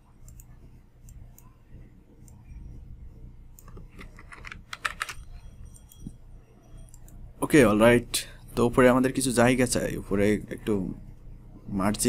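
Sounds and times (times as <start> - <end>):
steady low hum: 0.0 - 12.0
computer keyboard typing: 3.6 - 6.0.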